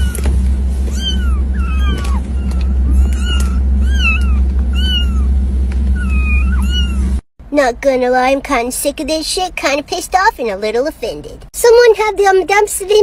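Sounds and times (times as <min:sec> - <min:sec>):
steady low hum: 0:00.0 - 0:08.9
kittens mewing: 0:00.9 - 0:05.3, 0:05.9 - 0:07.2.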